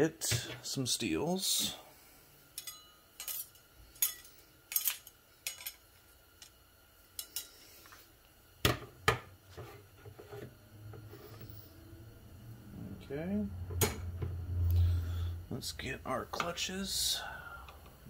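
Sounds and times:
metal plates clinking: 2.6 - 5.8.

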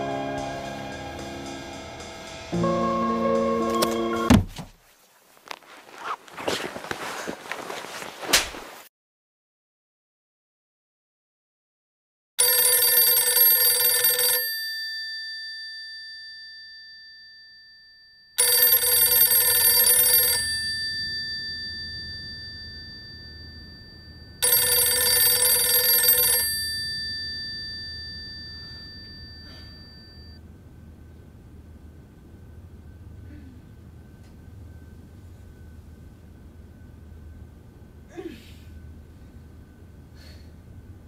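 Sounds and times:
desk telephone ringing: 12.4 - 30.4.

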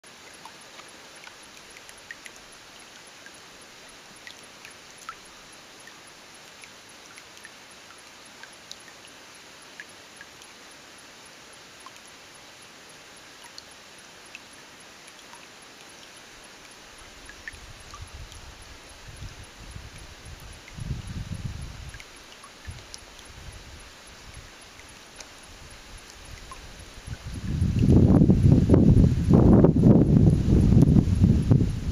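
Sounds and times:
faint water trickle: 0.0 - 31.9
water dripping plinks: 0.1 - 3.4, 4.1 - 10.6, 11.8 - 12.1, 13.4 - 18.5, 19.2 - 23.4, 24.2 - 28.2.

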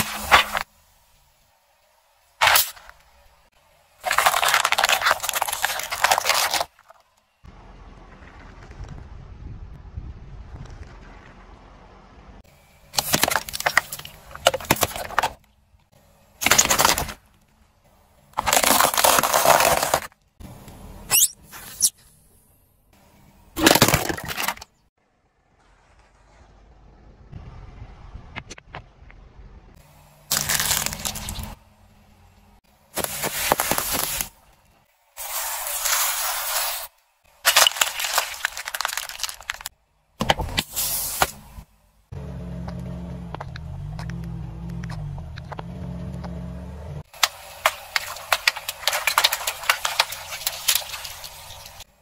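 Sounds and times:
tyre crunching paper cups: 4.0 - 7.0, 12.9 - 15.4, 16.4 - 17.2, 18.3 - 20.2, 23.6 - 24.7, 30.3 - 31.6, 32.9 - 34.4, 35.2 - 41.4, 47.1 - 52.0
tyre crushing plastic bottles: 4.0 - 7.0, 12.9 - 15.4, 16.4 - 17.2, 18.3 - 20.2, 23.6 - 24.8, 30.3 - 31.6, 33.0 - 34.3, 35.2 - 41.4, 47.1 - 51.9.

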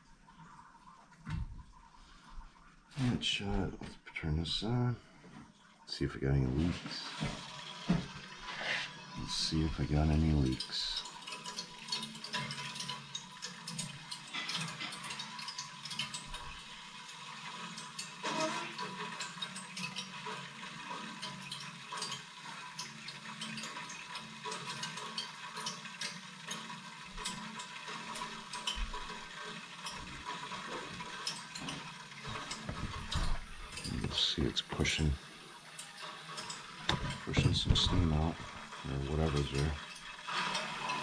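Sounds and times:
water flowing in pipes hissing: 0.0 - 41.0
crackling clicks in pipes: 6.8 - 41.0.

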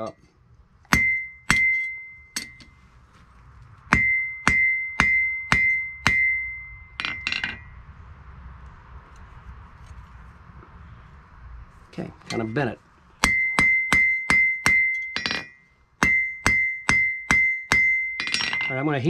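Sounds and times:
hammer ringing on anvil: 0.9 - 2.7, 3.9 - 7.8, 13.2 - 18.9
hammer clinking on anvil: 0.9 - 2.8, 3.9 - 7.8, 13.2 - 19.0.

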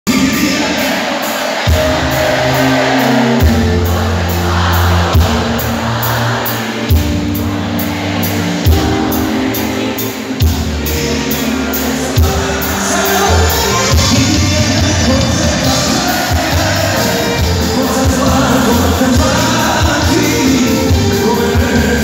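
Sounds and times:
drum accents: 0.1 - 22.0
live pop-folk band music: 0.1 - 22.0.

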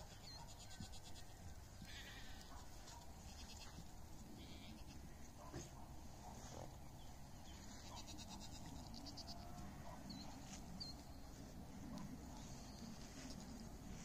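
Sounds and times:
goats bleating: 8.0 - 9.6.

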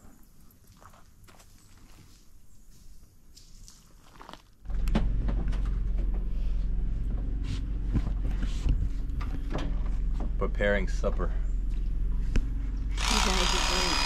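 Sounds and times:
electric knife motor hum: 12.9 - 14.0.

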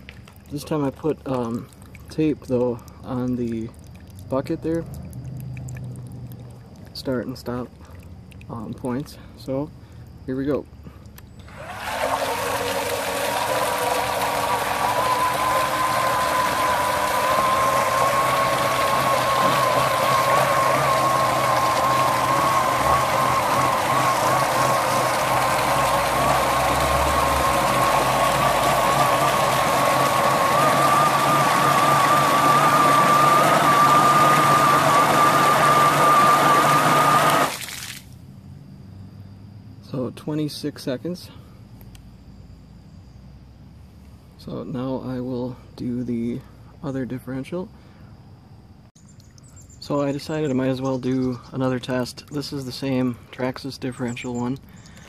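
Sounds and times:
water splashing on concrete: 0.0 - 9.1, 37.5 - 38.2
impeller churning water: 0.0 - 9.2, 11.5 - 38.1
electric motor whine: 11.4 - 37.6.

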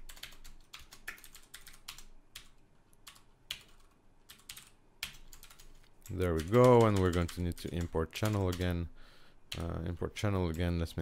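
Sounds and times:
keyboard typing clicks: 0.0 - 8.7.

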